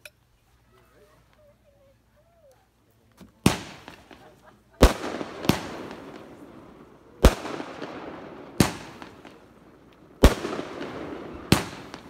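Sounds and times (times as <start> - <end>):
fireworks bangs: 3.3 - 12.0.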